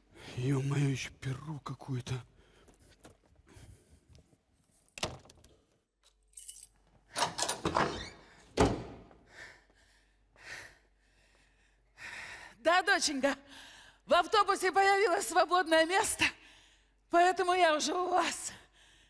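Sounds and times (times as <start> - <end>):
keys jingling: 6.0 - 7.6.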